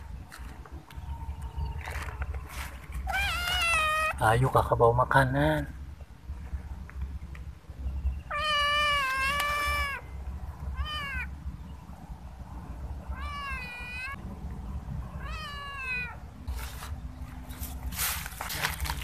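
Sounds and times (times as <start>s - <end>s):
cat meowing: 3.0s - 4.2s, 8.3s - 10.1s, 10.7s - 11.3s, 13.1s - 14.2s, 15.1s - 16.2s.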